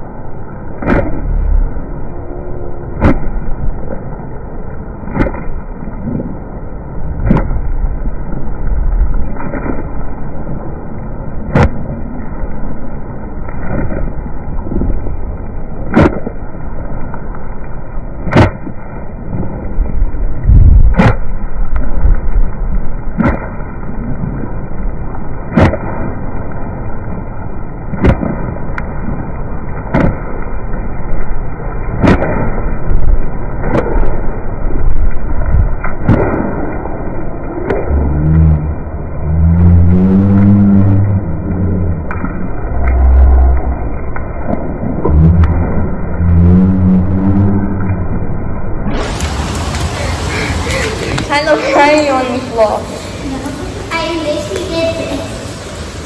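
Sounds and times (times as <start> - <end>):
deep muffled rushing: 0.0 - 15.2, 18.3 - 24.3.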